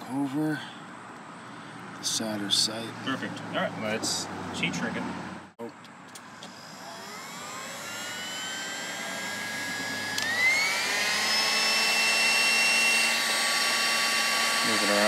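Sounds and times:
heat gun fan whine: 5.8s - 15.0s.

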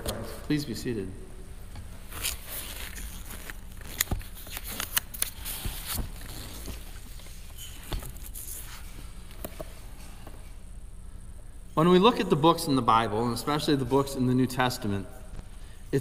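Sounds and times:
papers and book rustling: 1.8s - 10.5s.

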